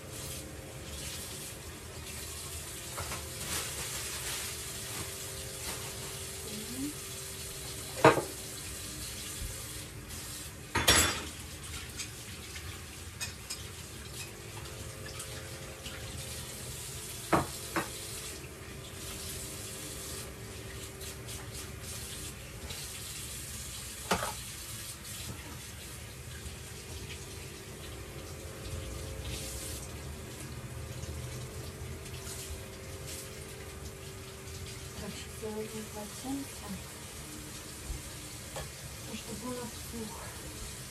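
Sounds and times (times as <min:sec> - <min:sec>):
tap running into metal sink: 0:07.9 - 0:08.4, 0:17.3 - 0:18.0
dishes clunking on sink: 0:08.0 - 0:08.4, 0:10.7 - 0:11.4, 0:17.3 - 0:18.0, 0:24.0 - 0:24.4.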